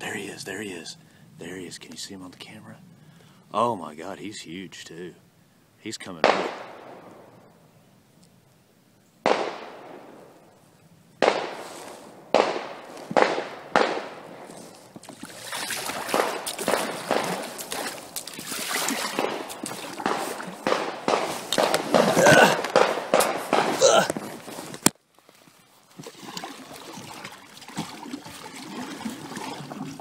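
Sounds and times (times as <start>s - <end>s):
echoing gunshots: 6.2s - 7.5s, 9.2s - 10.4s, 11.2s - 14.5s, 15.8s - 18.2s, 19.0s - 23.9s
paddle strokes splashing water: 14.5s - 30.0s.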